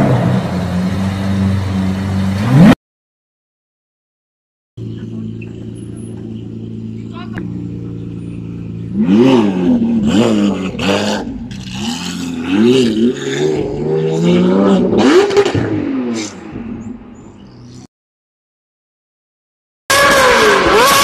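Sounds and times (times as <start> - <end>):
car engine idling and revving: 0.0 - 2.8, 4.8 - 17.9, 19.9 - 21.0.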